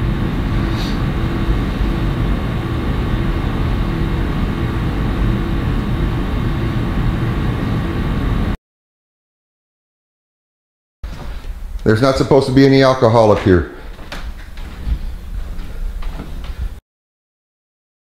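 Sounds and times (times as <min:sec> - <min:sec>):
faint hum: 0:00.0 - 0:08.6, 0:11.1 - 0:16.8
low rumbling: 0:00.0 - 0:08.6.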